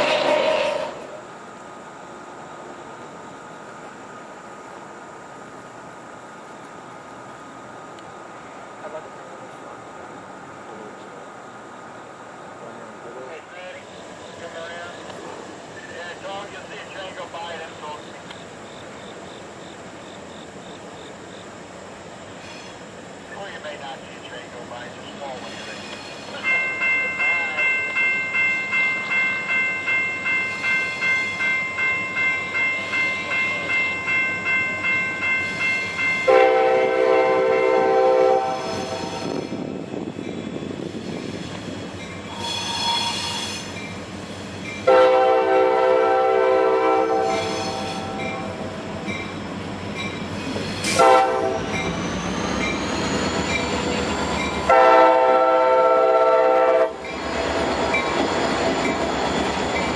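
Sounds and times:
locomotive air horn blasts: 0:36.2 - 0:39.2, 0:42.3 - 0:43.7, 0:44.9 - 0:48.5, 0:50.9 - 0:51.7, 0:54.7 - 0:57.0.

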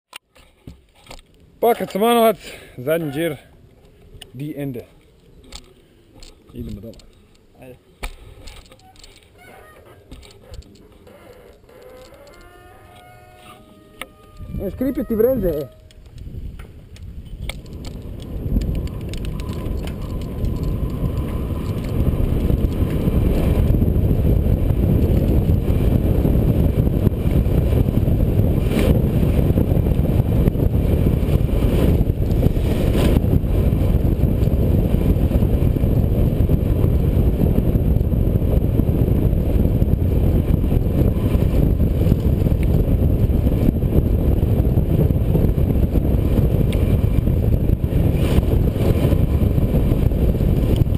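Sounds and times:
wind rushing: 0:13.8 - 0:50.9.

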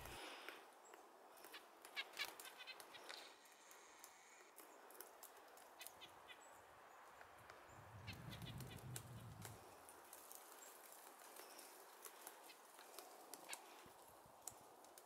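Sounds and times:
woodpecker tapping bark: 0:07.1 - 0:09.5.

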